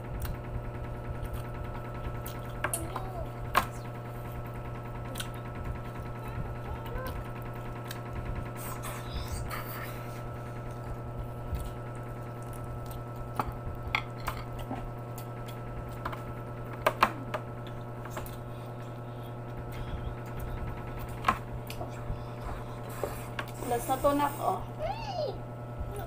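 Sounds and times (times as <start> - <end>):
steady low hum: 0.0 - 26.0
quiet chewing: 1.1 - 2.9, 5.0 - 16.3.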